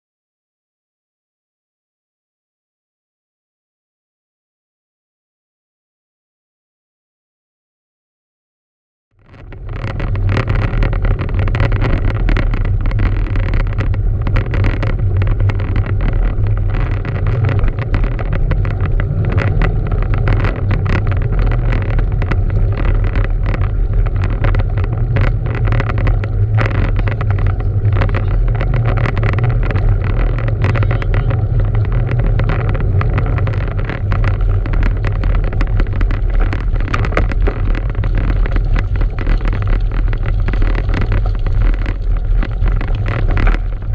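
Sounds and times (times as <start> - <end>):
bike clicks and rattles: 9.2 - 43.9
tyre noise: 9.2 - 43.9
wind buffeting microphone: 9.3 - 43.9.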